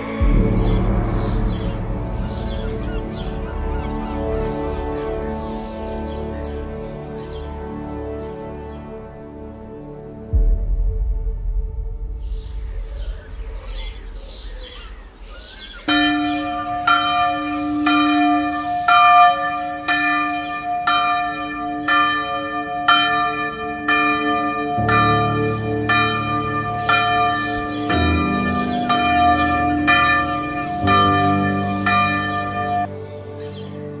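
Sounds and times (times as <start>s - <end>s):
low hum: 0.0s - 5.4s, 9.9s - 17.3s
church bell ringing: 0.0s - 8.4s, 15.8s - 34.0s.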